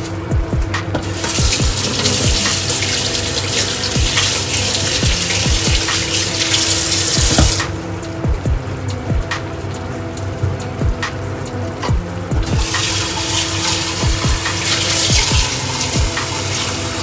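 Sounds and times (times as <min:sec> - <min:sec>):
tap running into sink: 0:00.9 - 0:07.7, 0:12.4 - 0:17.0.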